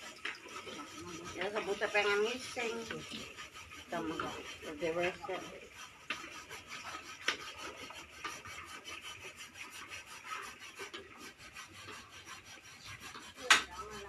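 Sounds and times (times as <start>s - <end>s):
utensils scraping in pots: 0.0s - 14.0s.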